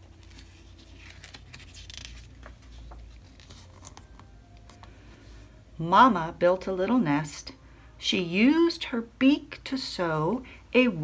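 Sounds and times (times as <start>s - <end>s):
paper rustling and crinkling: 0.0s - 4.9s.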